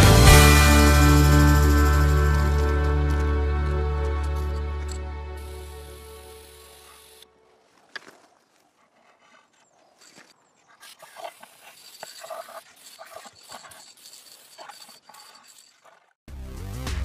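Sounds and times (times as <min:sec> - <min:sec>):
aerosol spray can hissing: 0:05.4 - 0:07.2.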